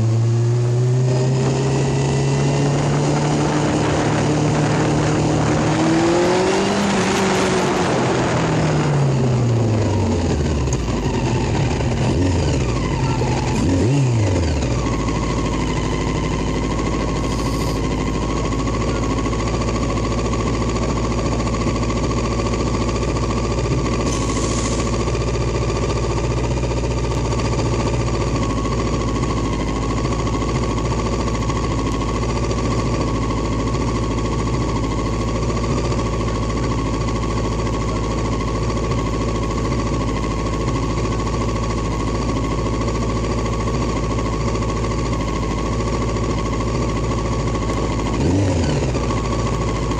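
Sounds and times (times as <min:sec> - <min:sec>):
engine revving: 0:00.0 - 0:25.9, 0:45.0 - 0:49.9
vehicle engine slowing and idling: 0:00.0 - 0:49.9.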